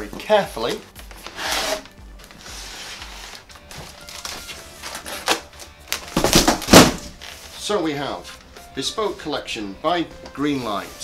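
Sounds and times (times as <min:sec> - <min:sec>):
faint background music: 0:00.0 - 0:11.0.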